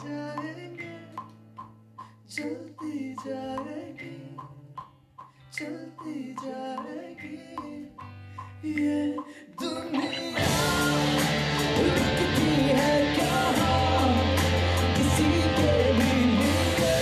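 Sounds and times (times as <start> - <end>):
man singing: 0.0 - 1.3, 2.3 - 4.8, 5.5 - 17.0
rock band music: 10.0 - 17.0.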